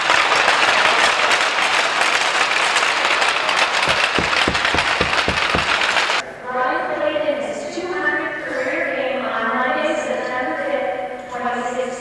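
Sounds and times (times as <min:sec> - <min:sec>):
crowd applauding: 0:00.0 - 0:06.2
low knocks: 0:03.8 - 0:06.2.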